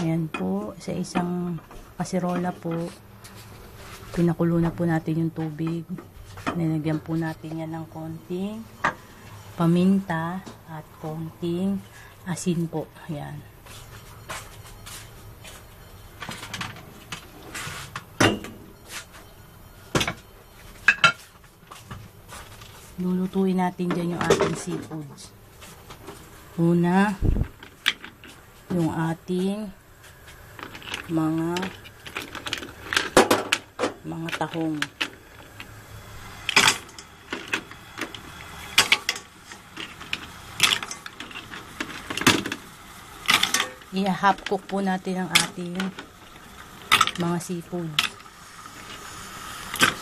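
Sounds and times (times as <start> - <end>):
mussel shells clacking in a metal pot: 30.5 - 35.8, 43.2 - 48.3.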